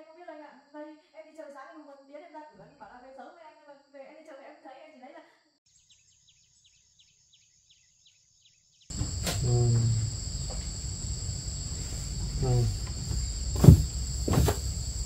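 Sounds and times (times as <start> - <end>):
crickets trilling: 8.9 - 15.0
short low voice sound: 9.0 - 14.0
sharp knock: 9.0 - 15.0.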